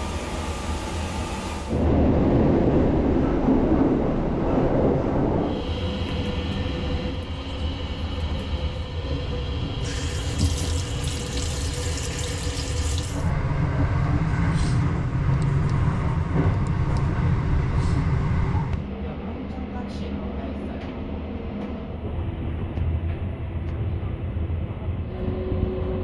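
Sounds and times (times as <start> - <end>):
train running noise: 0.0 - 26.0
tap water running onto a hand: 9.9 - 13.2.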